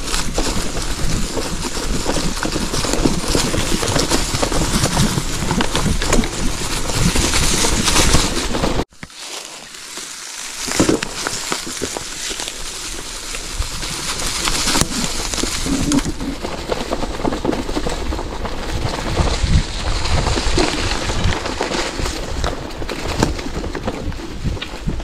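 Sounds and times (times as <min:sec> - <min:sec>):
bike tyres crunching on gravel: 0:00.0 - 0:25.0.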